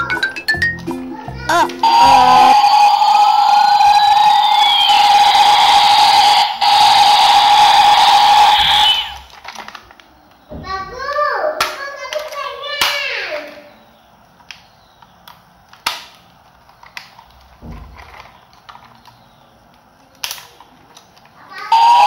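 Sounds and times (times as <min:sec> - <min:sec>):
plastic toy clicks and knocks: 0:11.1 - 0:13.6, 0:14.4 - 0:21.4.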